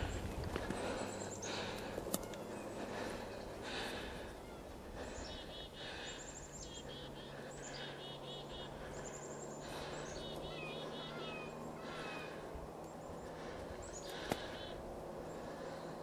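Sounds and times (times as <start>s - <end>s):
bird-like chirping calls: 5.2s - 12.3s.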